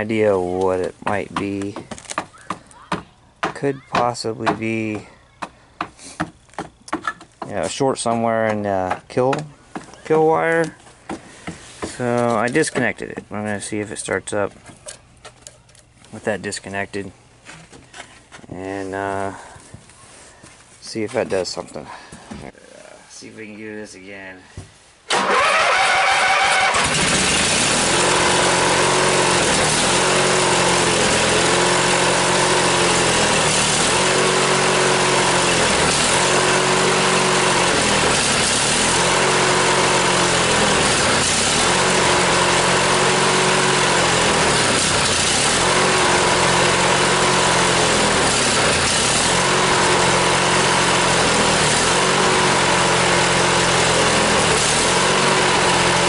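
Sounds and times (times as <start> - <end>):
lawn mower engine surging: 25.1 - 56.0.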